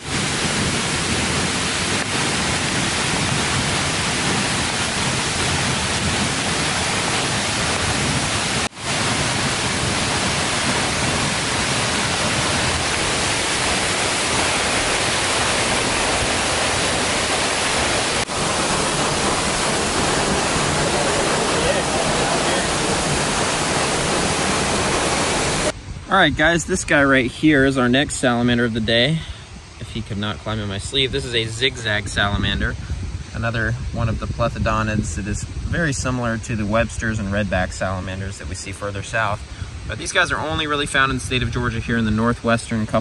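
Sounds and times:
waterfall rushing: 0:00.0 - 0:25.8.

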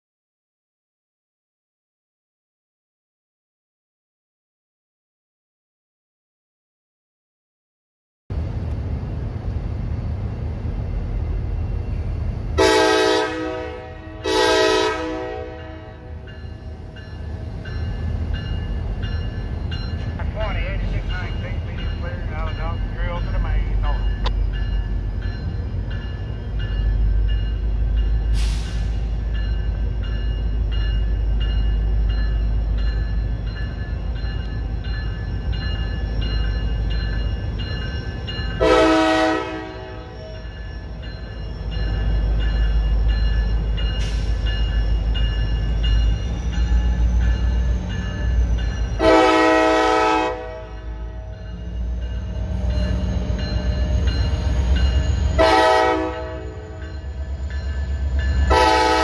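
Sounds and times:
train rumbling by: 0:08.3 - 0:59.0
locomotive air horn blasts: 0:12.6 - 0:16.2, 0:38.6 - 0:40.2, 0:49.0 - 0:51.2, 0:55.4 - 0:56.7, 0:58.5 - 0:59.0.

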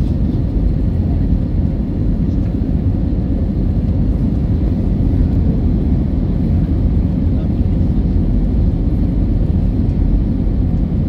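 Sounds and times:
airliner cabin rumble: 0:00.0 - 0:11.0.

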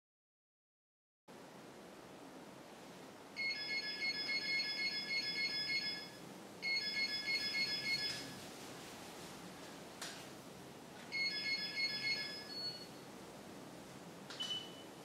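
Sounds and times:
electronic ringing tone trilling: 0:03.4 - 0:08.4, 0:11.1 - 0:13.0.

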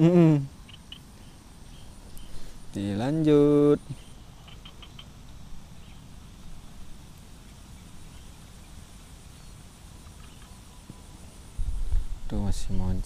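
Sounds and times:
high insect tone: 0:00.0 - 0:13.0
wind rumble on microphone: 0:11.5 - 0:13.0.

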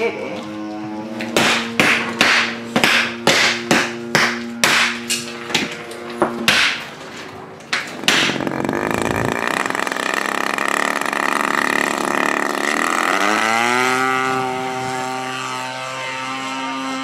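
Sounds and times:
sustained background music tones: 0:00.0 - 0:06.2
wooden mallets striking crab shells: 0:01.4 - 0:05.0, 0:06.5 - 0:06.8, 0:07.8 - 0:08.4.

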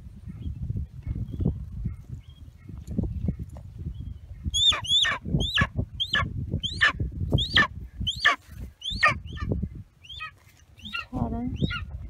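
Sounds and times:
eagle calling: 0:04.5 - 0:12.0.

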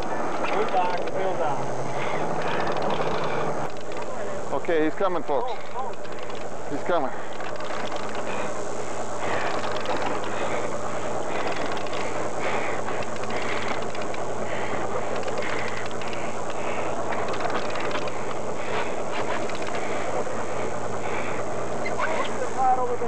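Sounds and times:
fishing reel ratcheting clicks: 0:00.0 - 0:01.5, 0:02.1 - 0:04.1, 0:07.3 - 0:08.4, 0:09.3 - 0:10.4, 0:11.3 - 0:12.3, 0:12.9 - 0:14.2, 0:15.1 - 0:18.4, 0:19.2 - 0:19.9
boat engine humming: 0:00.0 - 0:23.0.

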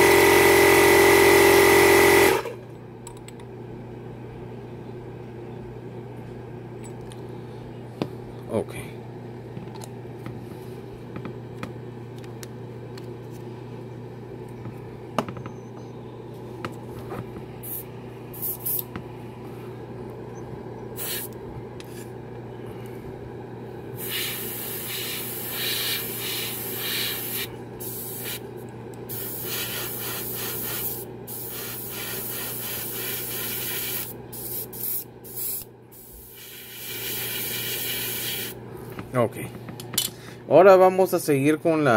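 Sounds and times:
airbrush compressor humming: 0:00.0 - 0:02.6, 0:23.9 - 0:28.5, 0:29.1 - 0:38.6
air hissing from airbrush: 0:17.6 - 0:18.8, 0:21.0 - 0:21.4, 0:24.0 - 0:28.4, 0:29.1 - 0:38.6.

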